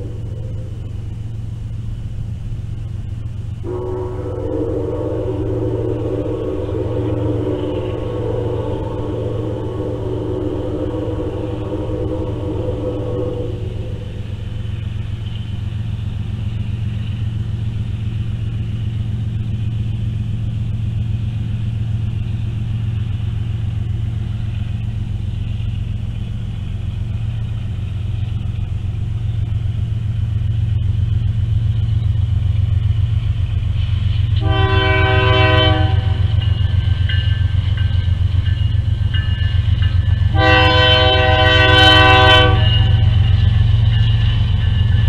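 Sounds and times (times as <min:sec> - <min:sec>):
train rumble: 0:00.0 - 0:45.0
steam whistle blowing: 0:03.6 - 0:14.7, 0:34.2 - 0:37.4, 0:40.2 - 0:44.8.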